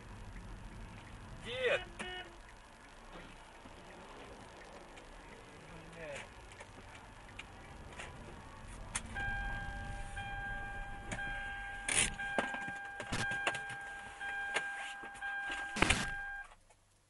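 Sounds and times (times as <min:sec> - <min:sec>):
car electronic warning tone: 0:09.1 - 0:16.5.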